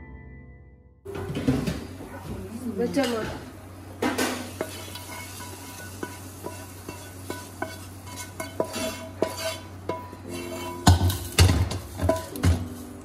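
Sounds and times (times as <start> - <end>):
wooden spatula knocking metal pan: 6.0 - 12.8.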